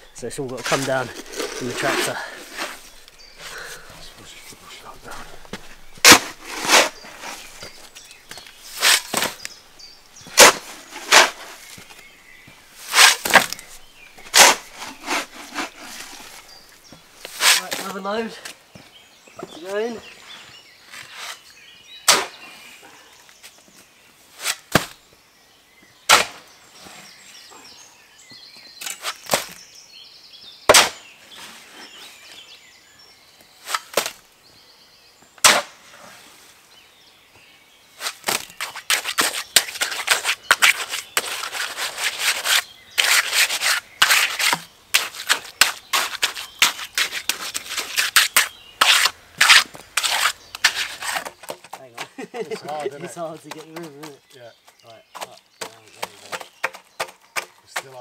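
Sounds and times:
trowel scraping concrete: 0:00.4 - 0:09.6, 0:10.3 - 0:12.1, 0:12.8 - 0:18.0, 0:38.0 - 0:54.0.

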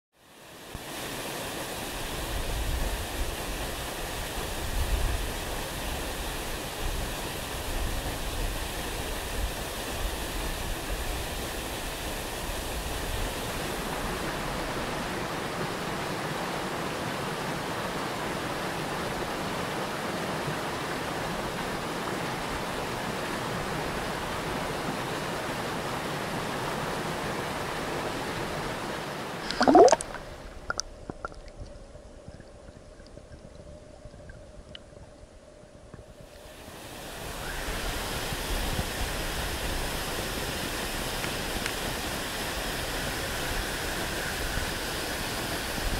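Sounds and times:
waterfall and rapids rushing: 0:00.2 - 0:30.9, 0:36.2 - 0:45.9
muffled underwater water sound: 0:00.5 - 0:45.9
loud splash: 0:29.4 - 0:30.2.

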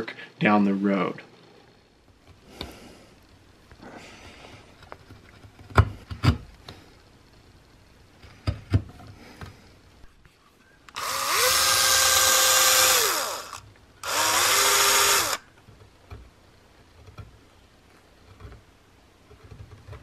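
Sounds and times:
rotary tool cutting wood: 0:10.9 - 0:15.4.

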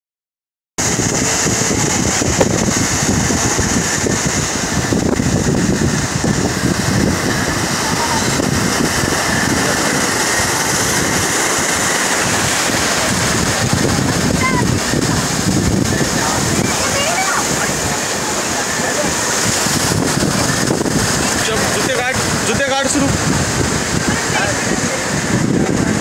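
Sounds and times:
sea waves over rocks: 0:00.8 - 0:26.0.

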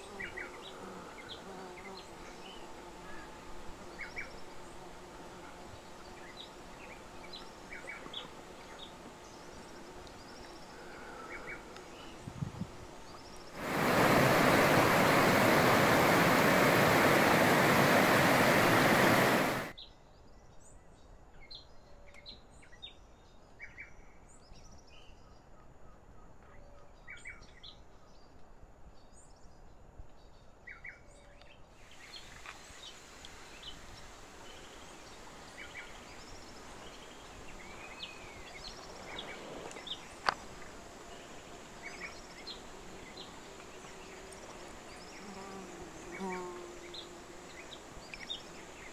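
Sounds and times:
river rapids rushing: 0:13.6 - 0:19.7.

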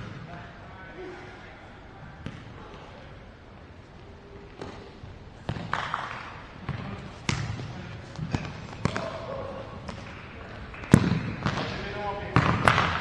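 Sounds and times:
ball thudding on hard court: 0:05.5 - 0:09.2, 0:10.9 - 0:11.8.

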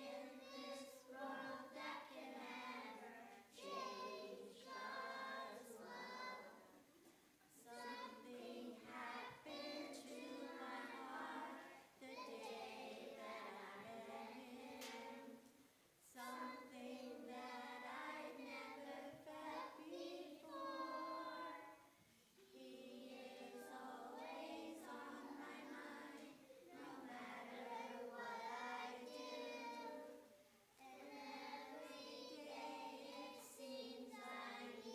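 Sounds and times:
children's choir singing: 0:00.0 - 0:34.9.

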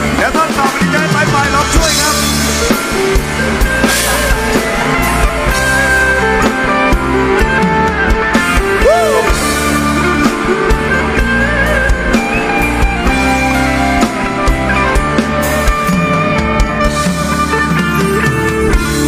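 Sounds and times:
drum kit: 0:00.0 - 0:19.0
guitar playing: 0:00.0 - 0:19.0.

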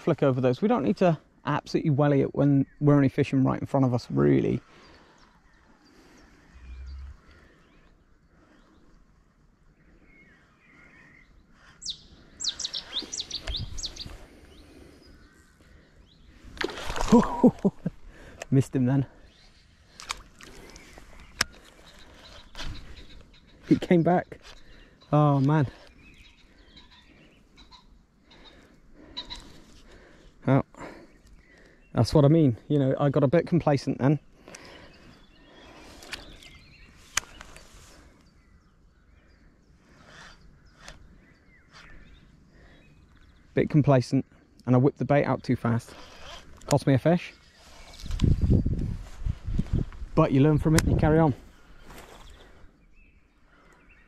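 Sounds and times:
songbird chirping: 0:00.0 - 0:54.0
faint bird calls: 0:04.4 - 0:32.1, 0:34.0 - 0:44.6.

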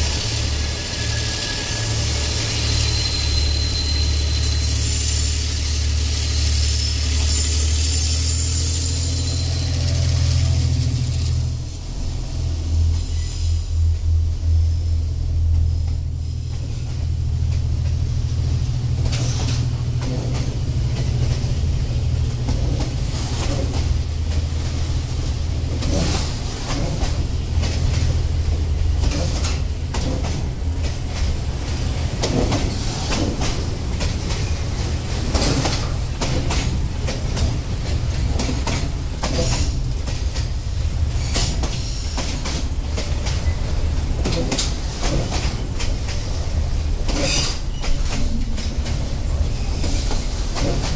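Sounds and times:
freight train rumbling past: 0:00.0 - 0:50.9
wheels clacking on track: 0:15.4 - 0:50.9.

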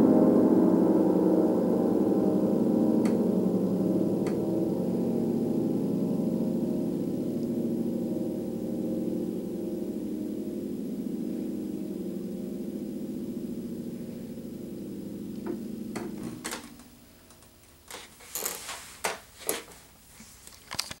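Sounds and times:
low piano chord ringing: 0:00.0 - 0:17.6
sharp clicks and knocks: 0:15.4 - 0:18.0.

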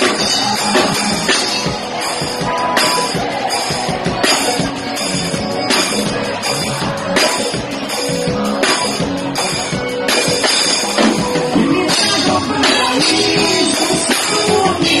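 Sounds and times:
drums: 0:00.0 - 0:15.0
guitar: 0:00.0 - 0:15.0
man and woman singing: 0:11.5 - 0:15.0.

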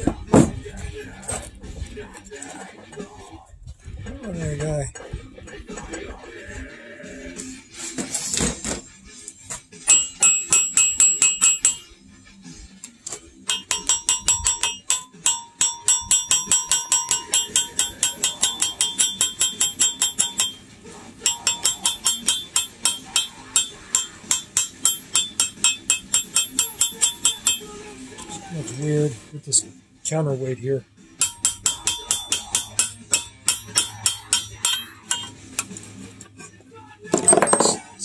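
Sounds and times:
fast metallic clicking of hand tool: 0:13.5 - 0:20.6, 0:21.2 - 0:27.7, 0:31.2 - 0:35.8.

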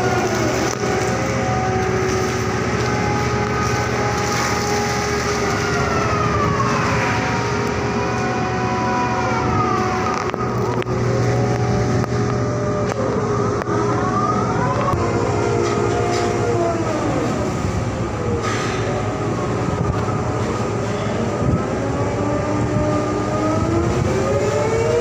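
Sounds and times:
crane engine hum: 0:00.0 - 0:25.0
whining tones sliding in pitch: 0:00.0 - 0:25.0.

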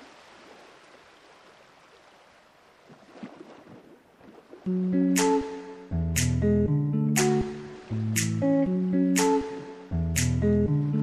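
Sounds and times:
plucked notes over bass line: 0:04.7 - 0:11.0.

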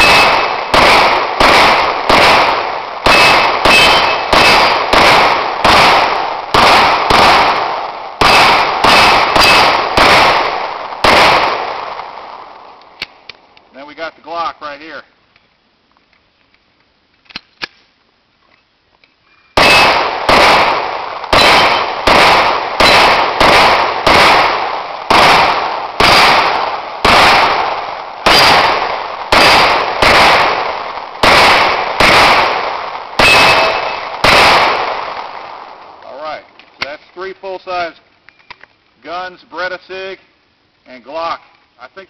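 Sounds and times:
pistol shots: 0:00.0 - 0:13.2, 0:19.6 - 0:35.8.

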